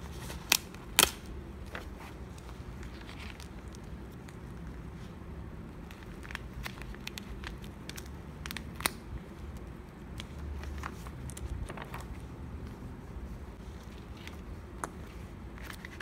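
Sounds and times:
paper rustling and crinkling: 0.0 - 16.0.

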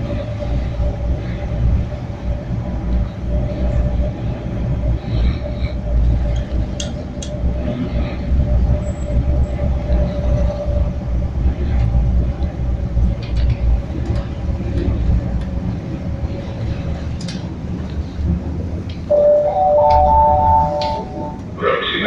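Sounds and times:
train carriage rumble: 0.0 - 22.0
mid-pitched hum: 18.8 - 22.0.

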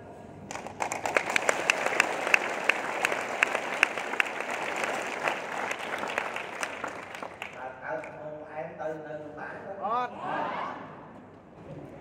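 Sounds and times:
audience applauding: 0.5 - 8.2.

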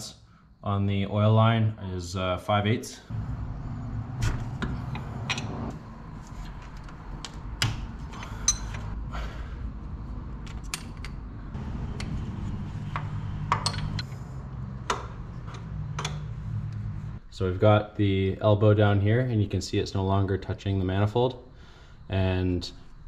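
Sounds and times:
steady low hum: 3.0 - 18.4
wrench clinking on nuts: 8.2 - 8.9, 13.5 - 14.1
metal taps: 12.9 - 14.1, 14.8 - 16.3.

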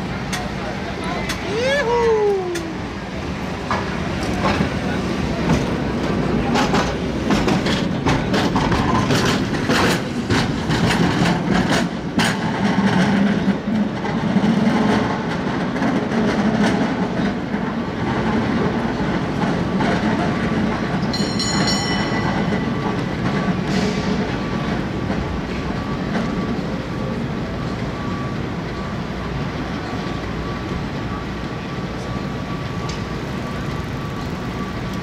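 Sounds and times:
cable car rumbling on rails: 0.0 - 35.0
high metallic ringing: 21.1 - 22.9.

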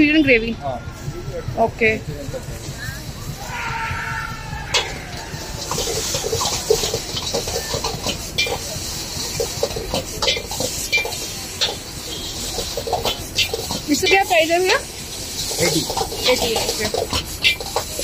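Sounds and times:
rice sizzling in a wok: 2.0 - 18.0
metal ladle scraping wok: 4.7 - 18.0.

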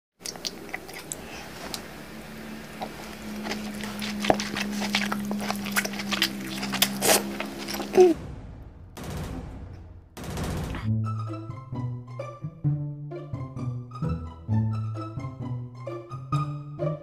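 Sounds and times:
wet chewing and slurping: 0.2 - 8.2
low hum: 0.4 - 11.3.

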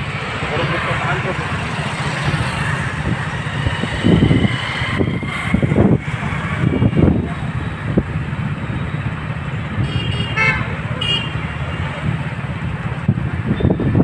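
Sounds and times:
road traffic rumble: 0.0 - 14.0.

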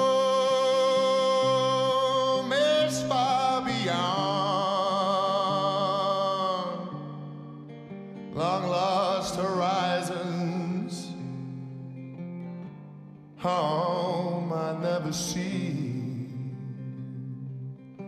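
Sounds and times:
person singing long notes: 0.0 - 7.6.

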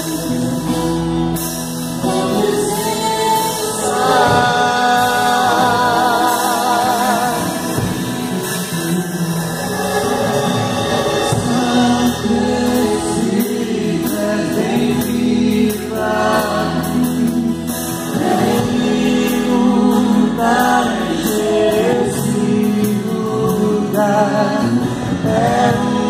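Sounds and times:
woman singing into microphone: 2.0 - 8.1.

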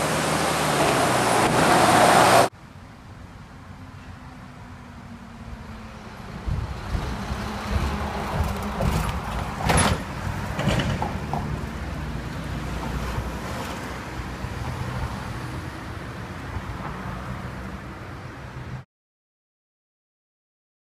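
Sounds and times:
lorry passing: 0.0 - 2.5
low traffic rumble: 0.0 - 18.8.

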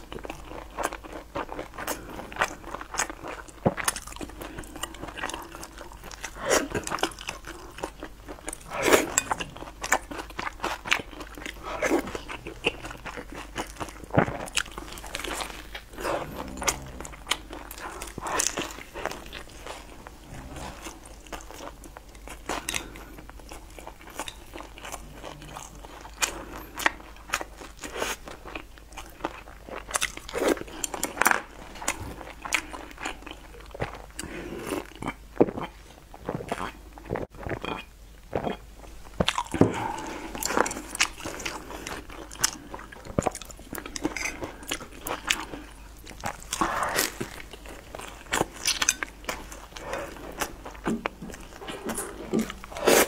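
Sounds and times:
crunchy chewing: 0.0 - 53.0
soft mouth noises: 11.5 - 23.3.

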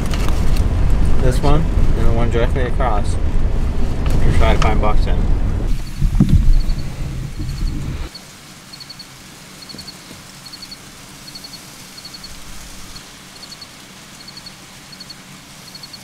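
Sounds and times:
low rumble: 0.0 - 8.1
crickets chirping: 5.7 - 16.0.

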